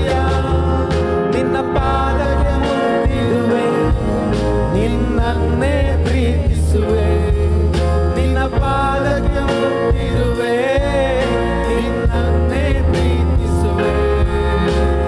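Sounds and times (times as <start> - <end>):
bass line and drum beat: 0.0 - 15.0
person singing: 0.0 - 15.0.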